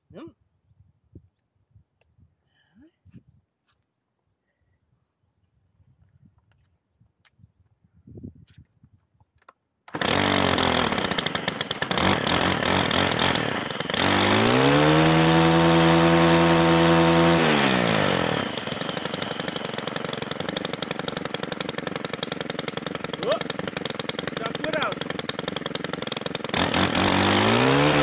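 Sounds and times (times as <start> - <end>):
brushcutter engine revving and idling: 9.9 - 28.0.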